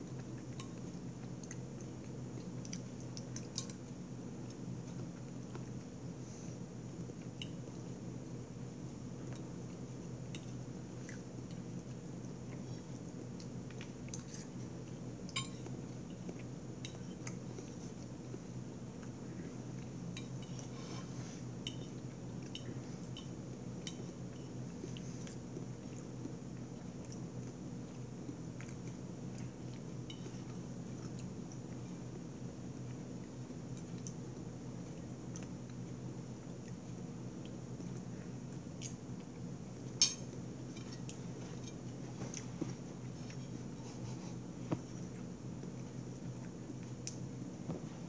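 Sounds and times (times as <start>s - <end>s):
steady low hum: 0.0s - 48.0s.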